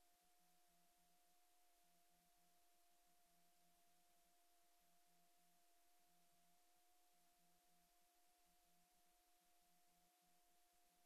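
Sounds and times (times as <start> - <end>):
faint steady tone and hiss: 0.0 - 11.0.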